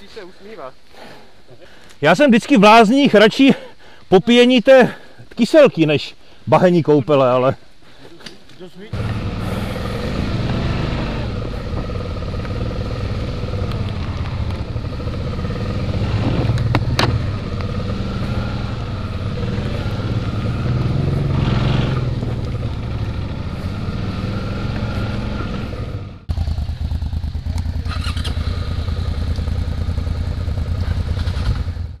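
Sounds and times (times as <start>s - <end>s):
motorcycle engine running: 9.0s - 32.0s.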